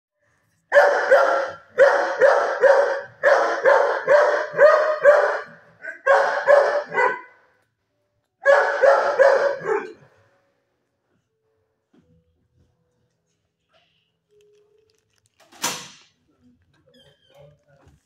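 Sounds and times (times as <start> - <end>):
dog barking: 0.7 - 7.4, 8.4 - 10.1.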